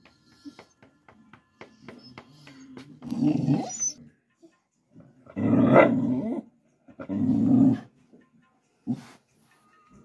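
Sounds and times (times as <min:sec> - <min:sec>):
dog growling: 0:02.8 - 0:03.9, 0:05.2 - 0:07.9.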